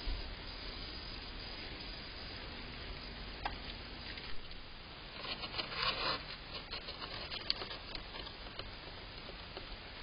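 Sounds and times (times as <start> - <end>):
light clicks and scratches: 5.2 - 9.8.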